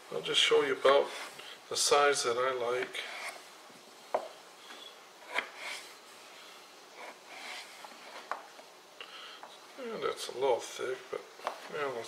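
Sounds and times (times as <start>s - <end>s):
knife scraping through potato: 5.2s - 6.0s, 7.0s - 8.3s.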